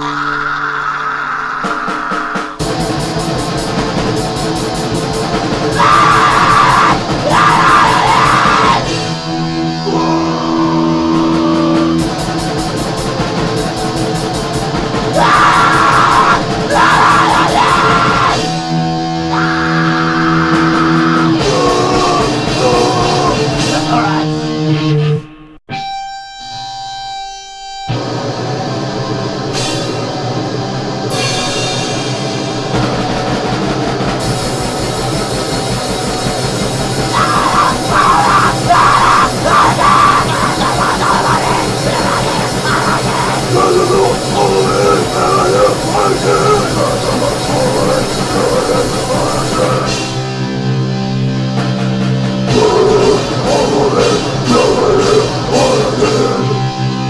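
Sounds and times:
grindcore music: 0:00.0 - 0:57.0.

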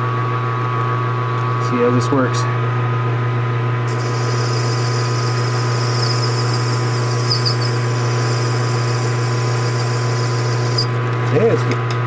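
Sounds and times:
lathe motor hum: 0:03.8 - 0:11.2
high hiss of cutting tool: 0:03.9 - 0:10.9.

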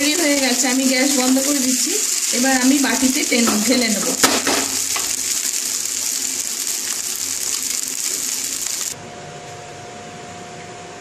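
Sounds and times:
pasta sizzling in a pan: 0:00.0 - 0:09.0.

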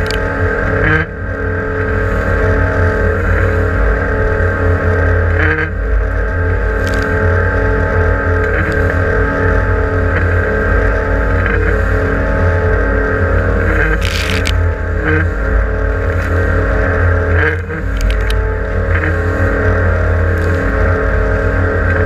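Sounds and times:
boat engine droning: 0:00.0 - 0:22.0.

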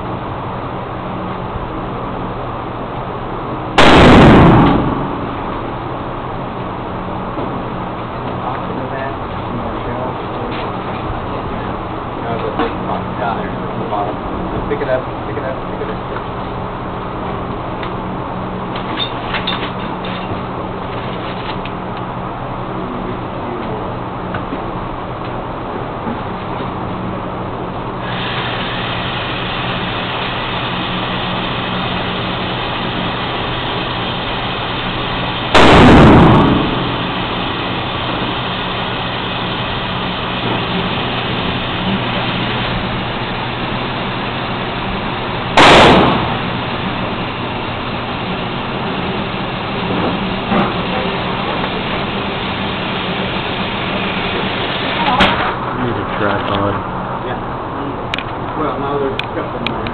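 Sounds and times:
steady background hum: 0:00.0 - 0:59.9
rifle shots with echo: 0:03.8 - 0:05.3, 0:35.6 - 0:37.0, 0:45.6 - 0:46.4.

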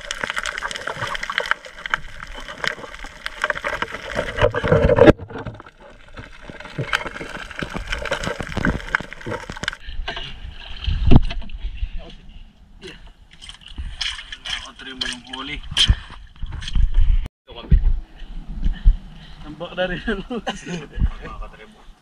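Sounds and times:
water sloshing and gurgling: 0:00.0 - 0:17.3.

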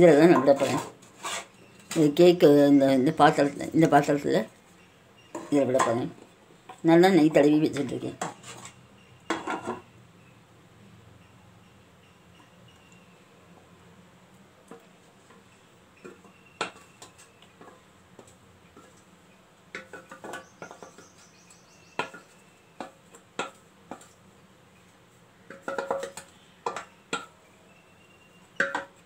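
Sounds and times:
spatula scraping metal bowl: 0:00.2 - 0:02.0.

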